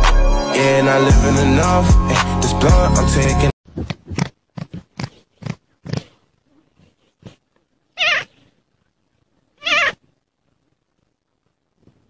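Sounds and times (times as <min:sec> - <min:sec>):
cat meowing: 0:07.9 - 0:08.4, 0:09.6 - 0:10.0.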